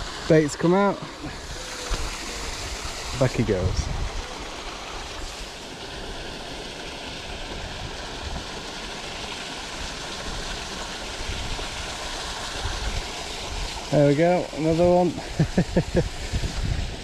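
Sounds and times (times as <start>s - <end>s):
wind rumble on microphone: 1.4s - 4.3s, 11.2s - 13.8s, 15.4s - 17.0s.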